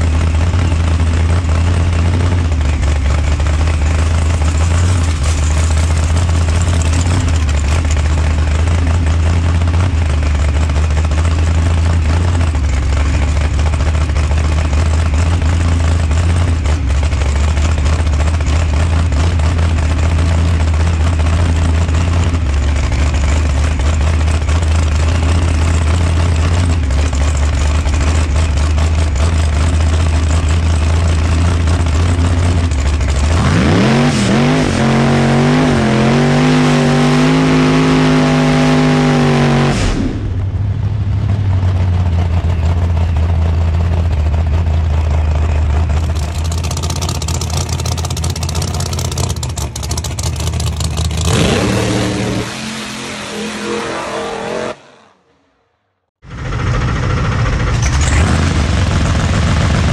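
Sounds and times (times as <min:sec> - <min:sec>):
car engine idling loudly: 0:00.0 - 0:52.5, 0:56.2 - 0:59.9.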